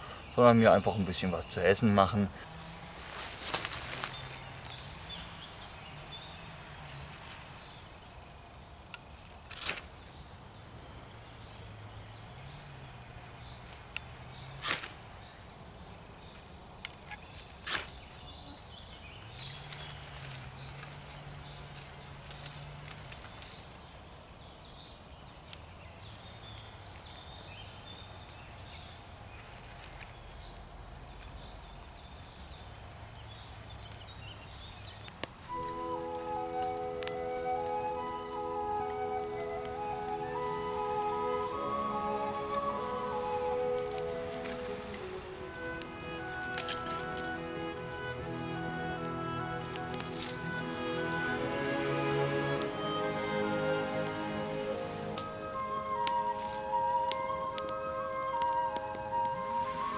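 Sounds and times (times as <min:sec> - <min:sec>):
tinder crackling: 0:02.4 - 0:06.1, 0:08.9 - 0:10.1, 0:19.3 - 0:23.8, 0:35.0 - 0:59.9.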